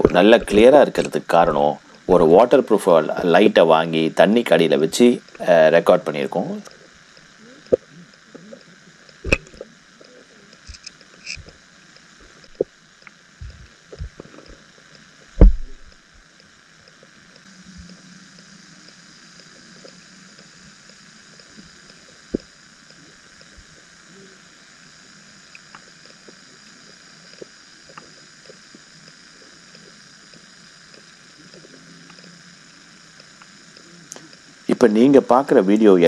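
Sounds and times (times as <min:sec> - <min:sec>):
underwater hiss: 0:00.0 - 0:36.0
underwater thump: 0:09.2 - 0:09.6, 0:15.4 - 0:16.0
underwater clicks and knocks: 0:09.2 - 0:09.7, 0:15.4 - 0:15.9.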